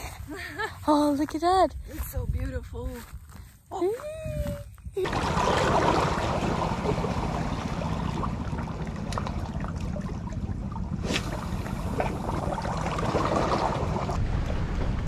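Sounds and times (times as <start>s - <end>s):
wind rumbling on microphone: 1.6s - 15.0s
shallow sea water washing: 5.0s - 14.2s.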